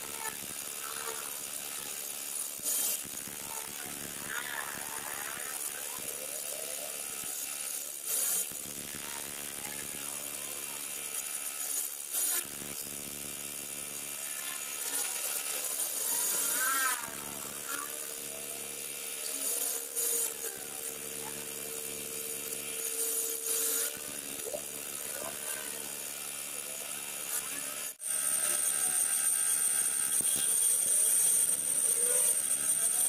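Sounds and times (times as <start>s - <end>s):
harsh scraping of metal cutting: 14.1s - 33.0s
lathe motor humming: 17.1s - 33.0s.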